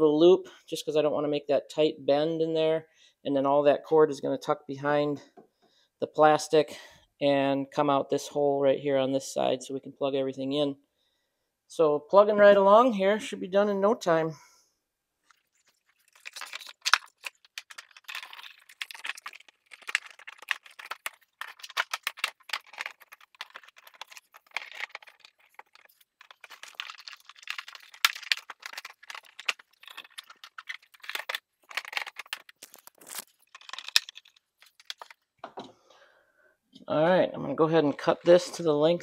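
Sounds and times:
cord and plastic panels rattling: 16.0 - 35.7.

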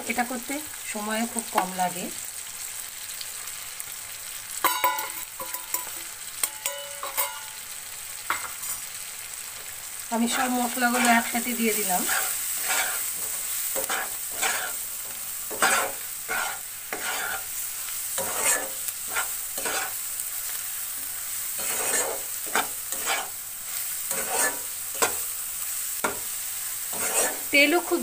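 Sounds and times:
food sizzling in hot oil: 0.0 - 28.0
spatula scraping pan: 10.2 - 25.4, 26.0 - 28.0.

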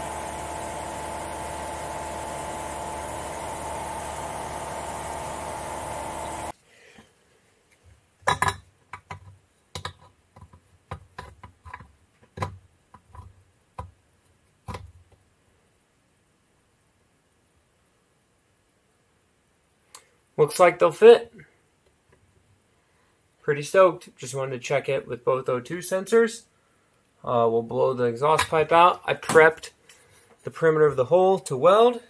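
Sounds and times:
mechanical hum: 0.0 - 6.6
metallic clinks and knocks: 8.2 - 12.5.

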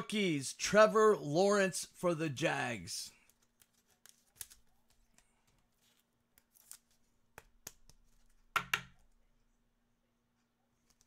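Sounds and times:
faint electrical hum: 0.0 - 11.0
cards and packaging handled: 3.1 - 9.2.

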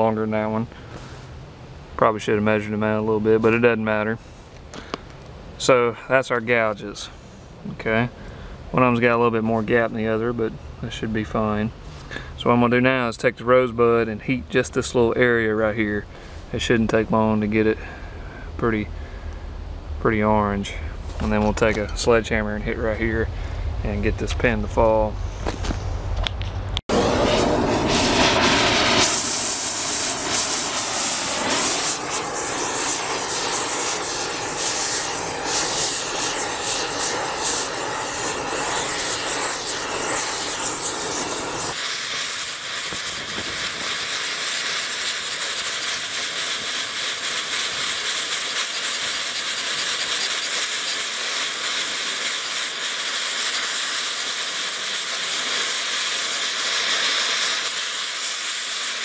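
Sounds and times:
gas torch hissing: 26.9 - 59.0.

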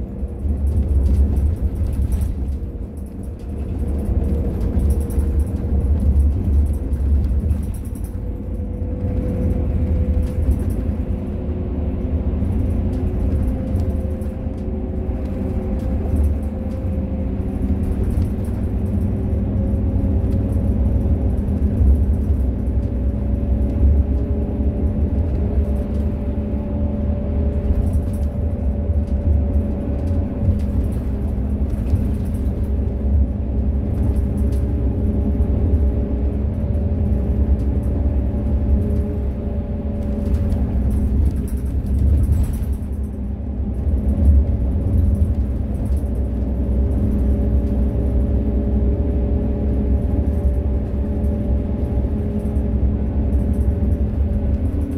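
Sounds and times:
bus engine and road rumble: 0.0 - 54.9
engine whine: 0.0 - 54.9.

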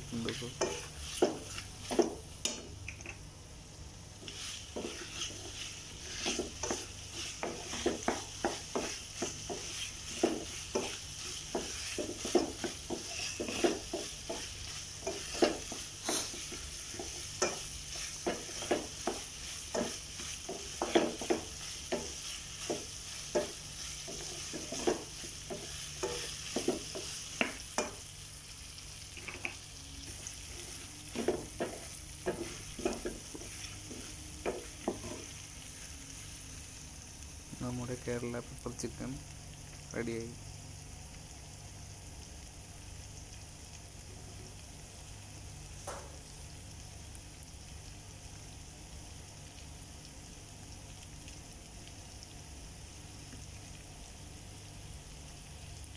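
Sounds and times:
chicken sizzling: 0.0 - 55.9
spatula scraping a pan: 0.3 - 2.2, 4.2 - 28.0, 29.2 - 35.8.

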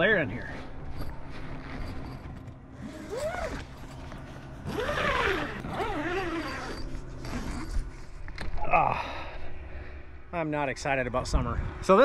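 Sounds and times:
tent door zipper being pulled: 1.4 - 8.2.

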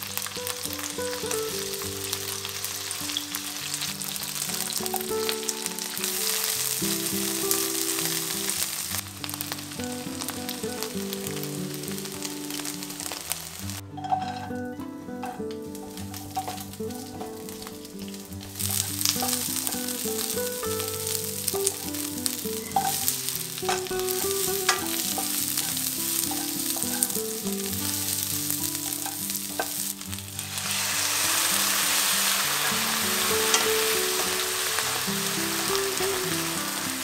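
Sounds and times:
vegetables sizzling in a wok: 0.0 - 37.0
wooden spatula scraping a pan: 22.8 - 27.4.

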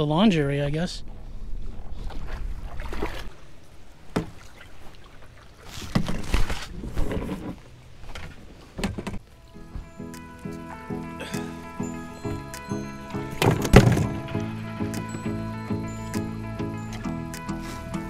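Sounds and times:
paddle splashing in water: 1.6 - 9.3, 12.3 - 15.5
knocks against kayak: 13.4 - 14.3.

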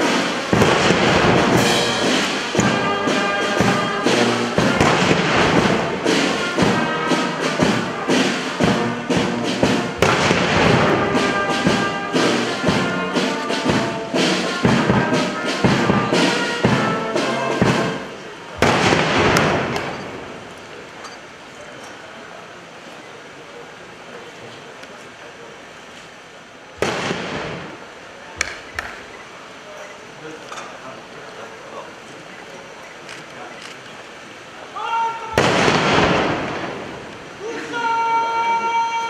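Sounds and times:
heavy drum beats: 0.0 - 20.2
brass band playing: 0.0 - 20.4
loud noisy burst: 0.0 - 20.5, 26.8 - 28.1, 35.1 - 39.0.

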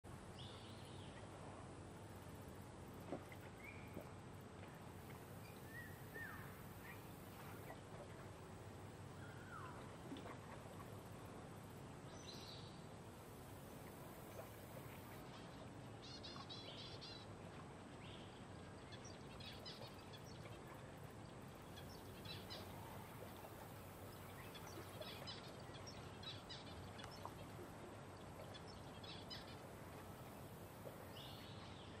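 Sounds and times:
low background hum: 0.1 - 32.0.

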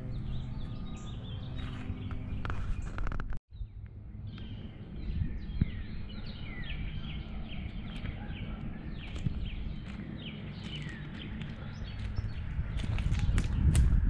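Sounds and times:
songbirds chirping: 0.0 - 14.0
wind rumble: 0.0 - 14.0
footsteps on gravel: 7.6 - 14.0.

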